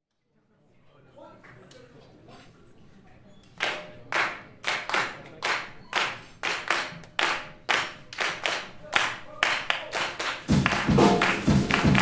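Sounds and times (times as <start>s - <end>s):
people clapping in time: 3.6s - 12.0s.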